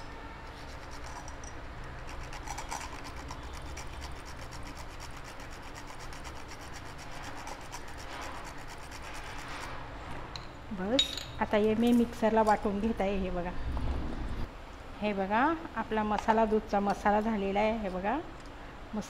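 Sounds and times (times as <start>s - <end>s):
nutmeg rasped on metal grater: 2.0s - 9.7s.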